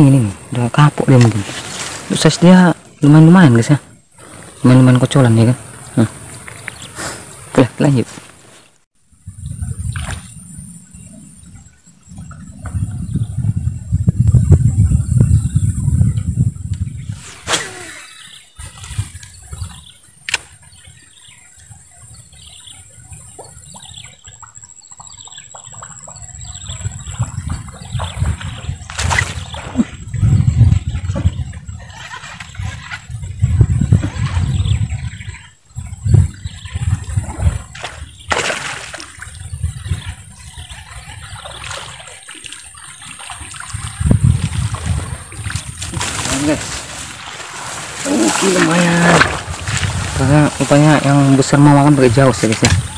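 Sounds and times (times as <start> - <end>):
wind rumble on microphone: 9.0 - 24.4, 25.5 - 52.9
light splashing of water: 37.1 - 52.9.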